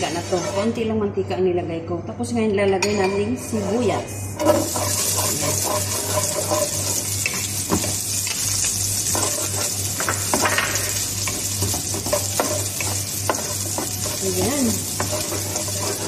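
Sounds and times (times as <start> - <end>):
wooden spoon scraping pan: 0.0 - 0.9, 3.1 - 8.0, 9.0 - 16.0
onion sizzling in oil: 4.4 - 16.0.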